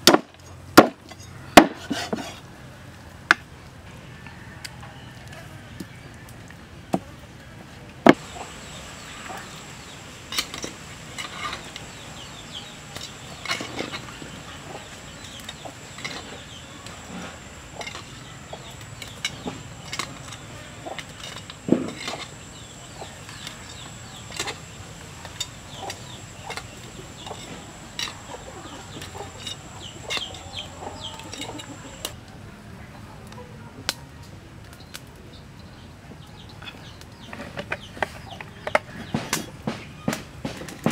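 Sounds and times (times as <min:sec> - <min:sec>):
chickens clucking: 0:08.1 - 0:32.2, 0:36.2 - 0:40.2.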